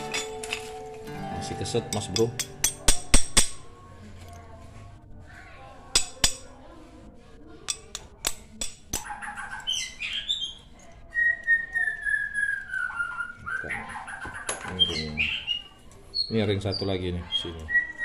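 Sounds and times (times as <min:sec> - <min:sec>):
chirping: 0:09.0 - 0:18.0.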